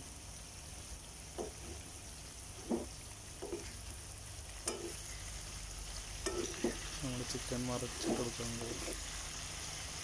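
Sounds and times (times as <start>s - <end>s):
chicken frying in hot oil: 0.0s - 10.0s
short knocks in pan: 1.3s - 1.8s, 2.6s - 3.7s.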